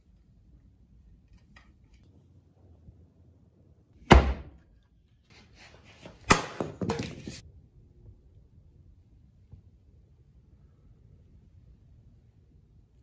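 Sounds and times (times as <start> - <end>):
axe chopping wood: 4.1 - 4.6
wood clattering on concrete floor: 6.1 - 7.4.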